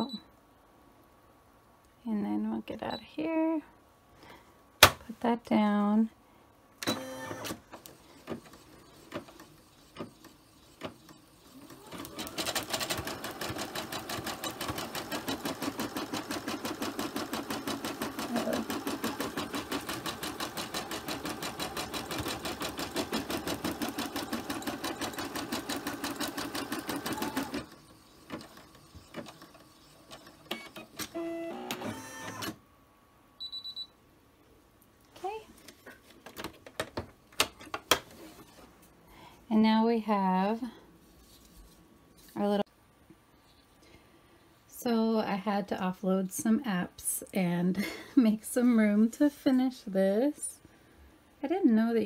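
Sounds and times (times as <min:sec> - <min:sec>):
embroidery machine stitching: 0:06.8 - 0:32.6.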